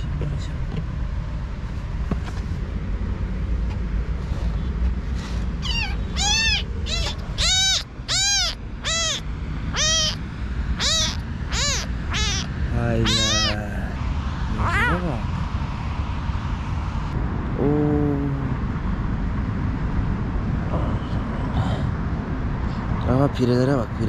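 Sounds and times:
kitten mewing: 5.6s - 10.2s, 10.8s - 15.3s.

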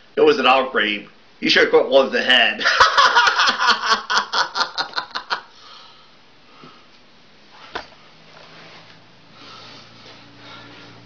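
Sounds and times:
person laughing: 2.6s - 5.5s.

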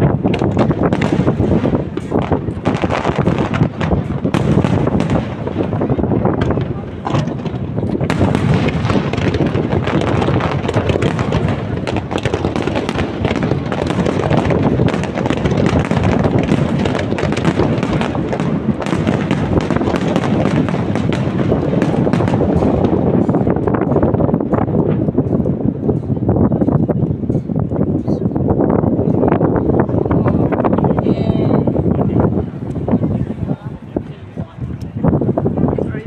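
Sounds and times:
firework shells bursting: 0.0s - 27.7s.

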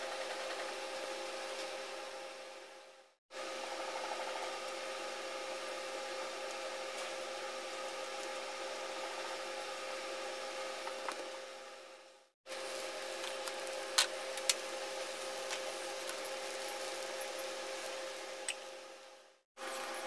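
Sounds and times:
constant hum: 0.0s - 20.0s
hissing from hot pan: 12.5s - 18.5s.

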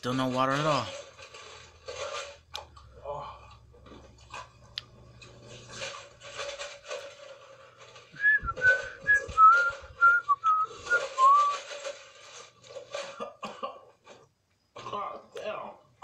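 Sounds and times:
man whistling a tune: 8.2s - 11.6s.

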